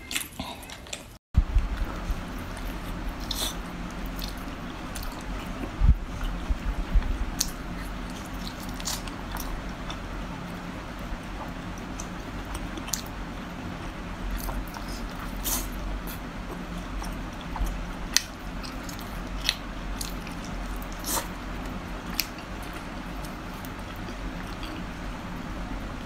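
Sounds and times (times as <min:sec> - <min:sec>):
steady low hum: 0:00.0 - 0:26.0
person chewing wetly: 0:01.7 - 0:06.6, 0:07.4 - 0:10.6, 0:14.2 - 0:24.9.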